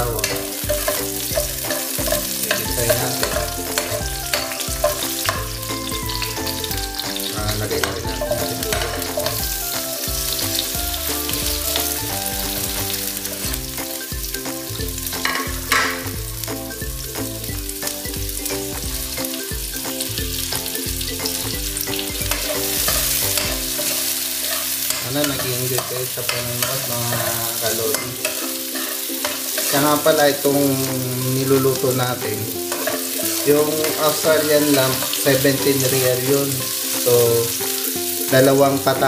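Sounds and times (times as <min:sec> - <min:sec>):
garlic sizzling in oil: 0:00.0 - 0:39.0
spatula scraping pan: 0:00.2 - 0:13.5, 0:22.0 - 0:31.8, 0:32.6 - 0:36.0.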